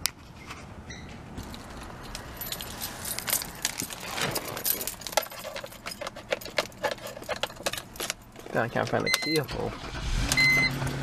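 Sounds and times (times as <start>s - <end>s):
keys jangling on a key ring: 1.5s - 8.3s.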